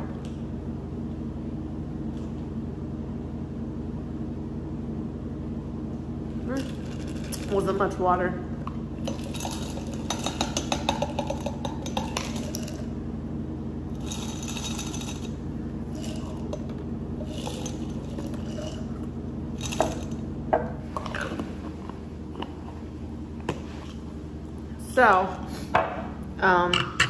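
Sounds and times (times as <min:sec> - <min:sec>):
low hum: 0:00.0 - 0:27.0
ice cubes clinking in glass jar: 0:09.0 - 0:12.8, 0:14.0 - 0:18.9, 0:19.6 - 0:20.2.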